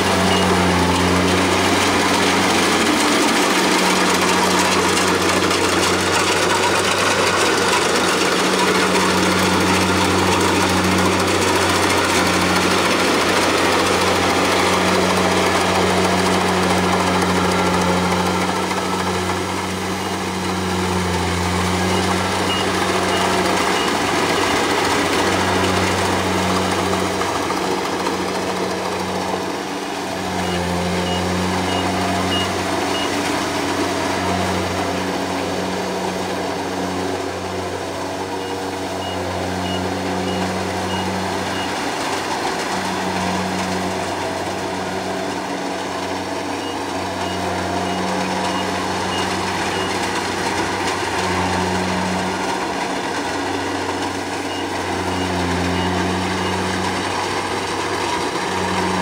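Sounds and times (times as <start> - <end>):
diesel engine humming: 0.0 - 59.0
machine noise: 0.0 - 59.0
rapid high beeping: 0.2 - 34.9, 46.6 - 50.3.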